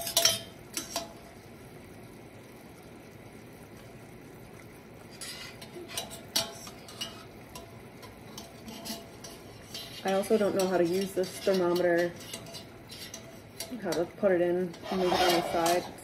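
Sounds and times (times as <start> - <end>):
metal utensil scraping a pan: 0.0 - 1.2, 5.0 - 16.0
sugar syrup boiling in a saucepan: 0.0 - 16.0.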